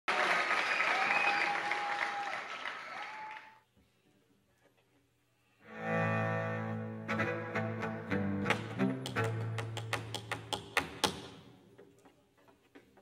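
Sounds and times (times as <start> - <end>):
audience applause: 0.1 - 3.6
cello low bowed note: 5.7 - 9.2.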